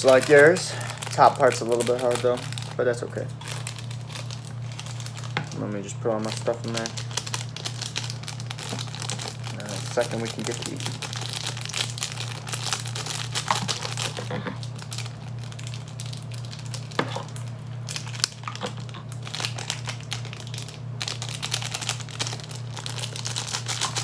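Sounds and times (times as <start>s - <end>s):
plastic foil packets crinkling: 0.0s - 24.0s
steady low hum: 0.0s - 24.0s.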